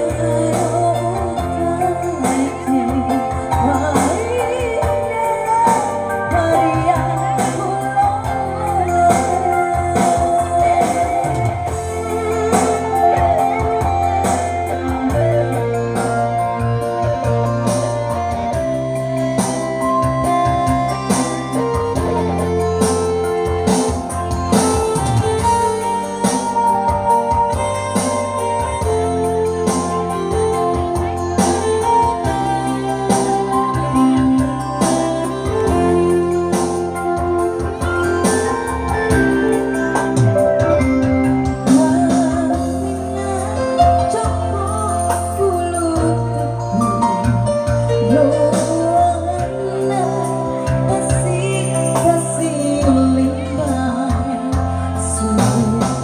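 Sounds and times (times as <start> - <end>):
woman singing with vibrato: 0.0 - 18.6, 41.3 - 56.0
electronic keyboard: 0.0 - 56.0
steady bass: 0.0 - 56.0.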